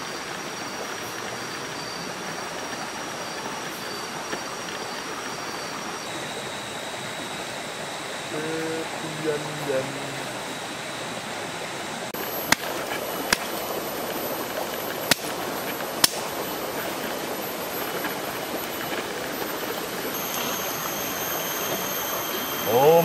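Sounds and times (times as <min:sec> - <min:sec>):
fire crackling pops: 0:12.2 - 0:19.8.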